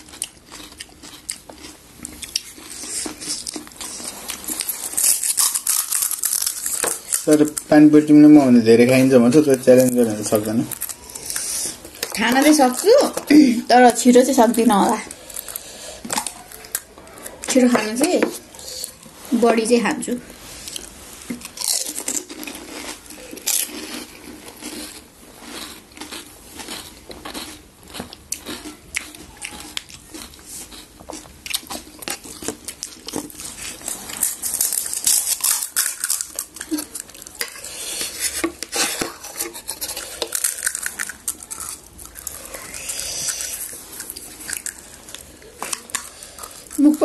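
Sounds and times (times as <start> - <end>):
crisp shells crunching: 0.0 - 16.9, 20.6 - 47.0.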